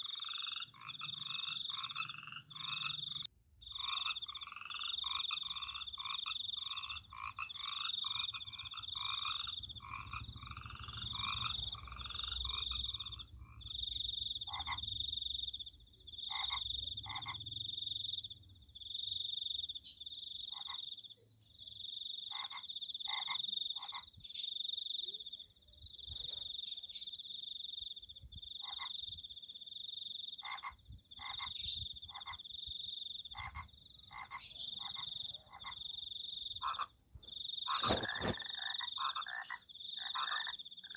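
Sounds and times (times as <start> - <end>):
animals calling at night: 0.0 - 25.4, 26.0 - 40.9.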